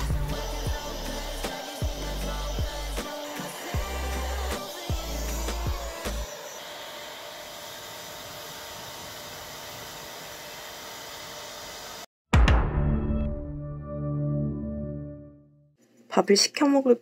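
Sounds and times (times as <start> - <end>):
background music: 0.0 - 6.3, 12.4 - 15.6
hair dryer whoosh: 0.0 - 12.1.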